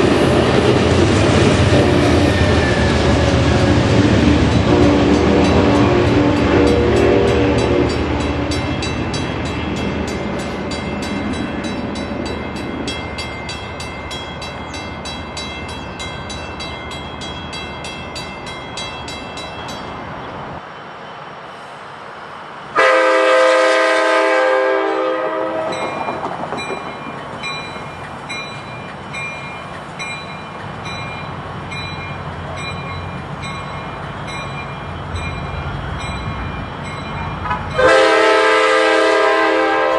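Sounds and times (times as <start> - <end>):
approaching passenger train: 0.0 - 39.9
train rail noise: 0.0 - 39.9
train horn: 1.6 - 3.0, 4.5 - 8.2, 22.8 - 25.9, 37.7 - 39.9
multi-note air horn blast: 22.8 - 25.7, 37.8 - 39.9.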